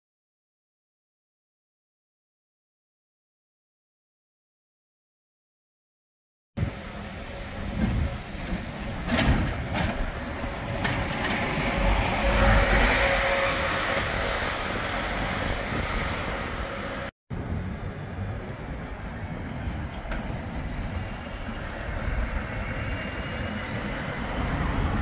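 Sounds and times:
diesel bus driving past: 0:06.6 - 0:25.0.

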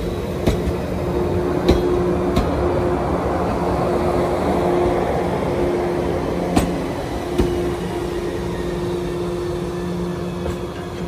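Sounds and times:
train wheels clacking over rail joints: 0:00.0 - 0:01.0, 0:01.6 - 0:02.7, 0:06.5 - 0:07.8
electric train rolling past: 0:00.0 - 0:11.0.

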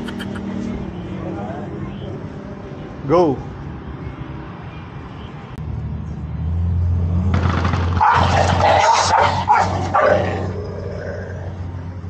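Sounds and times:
dogs growling: 0:08.0 - 0:11.8.

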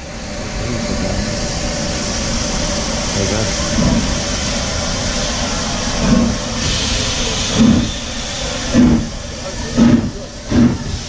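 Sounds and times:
steam hissing: 0:00.0 - 0:11.0
steam locomotive exhaust chuffs: 0:00.0 - 0:11.0.

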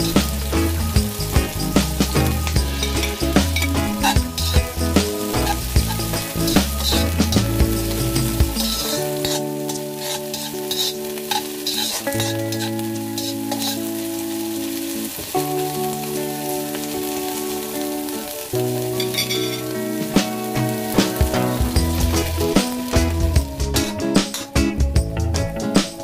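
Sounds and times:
background music with slow chords: 0:00.0 - 0:26.0
chives sizzling in a wok: 0:00.0 - 0:26.0
spatula scraping a metal pan: 0:05.3 - 0:13.9, 0:19.0 - 0:19.7.

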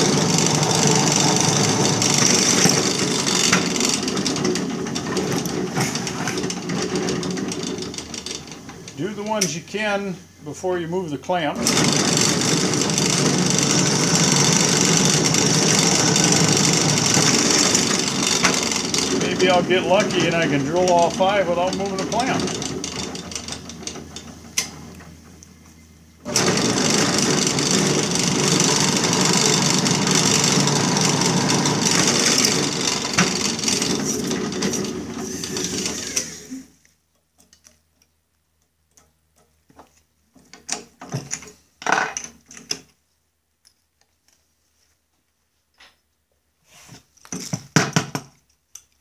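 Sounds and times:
drill press drilling metal: 0:00.0 - 0:09.5, 0:11.6 - 0:25.1, 0:26.3 - 0:36.7.

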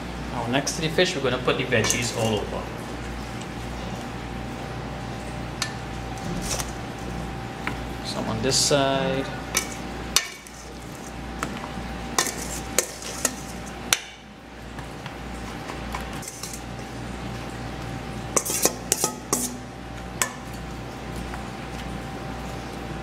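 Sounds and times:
metal spoon clinking in steel bowl: 0:01.8 - 0:02.4.

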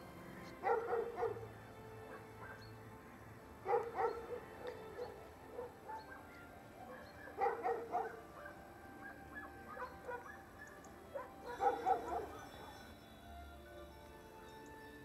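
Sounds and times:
dog barking: 0:00.6 - 0:01.5, 0:02.1 - 0:02.6, 0:03.6 - 0:12.9.

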